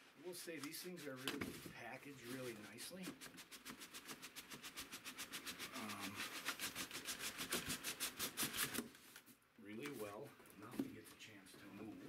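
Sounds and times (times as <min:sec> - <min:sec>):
cardboard rubbing on cardboard: 0:00.0 - 0:08.9.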